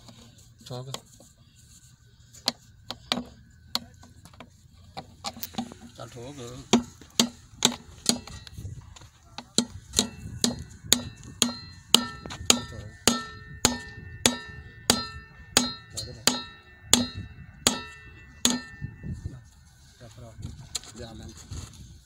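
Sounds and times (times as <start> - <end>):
hand tool striking plastic pipe fitting: 2.4 - 5.9, 6.7 - 8.5, 9.4 - 18.8.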